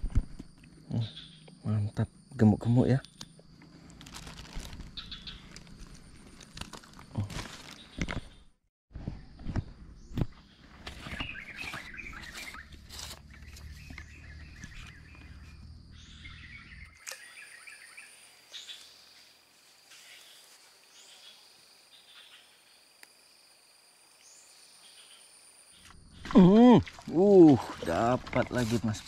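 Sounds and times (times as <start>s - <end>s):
birds chirping: 0.5s - 6.4s, 9.2s - 19.3s
high insect drone: 12.5s - 29.0s.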